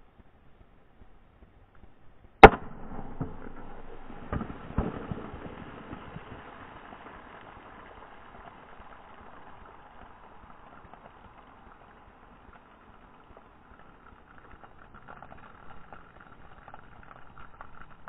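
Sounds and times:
gunshot crack: 0:02.4 - 0:08.2
soda fizzing and spattering: 0:02.4 - 0:18.0.

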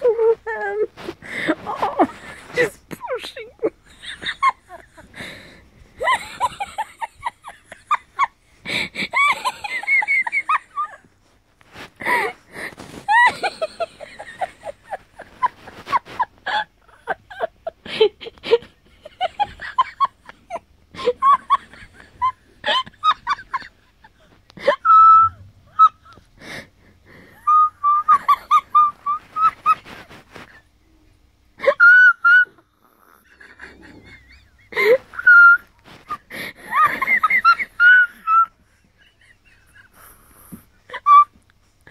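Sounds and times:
person laughing high-pitched: 0:13.0 - 0:23.7.

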